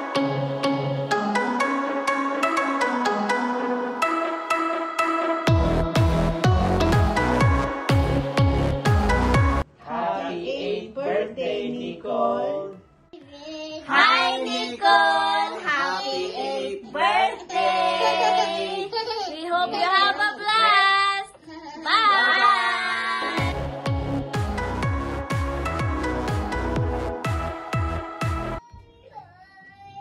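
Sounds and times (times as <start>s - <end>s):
people singing together: 9.8s - 12.8s, 13.8s - 18.9s
child singing: 13.2s - 19.3s, 28.6s - 30.0s.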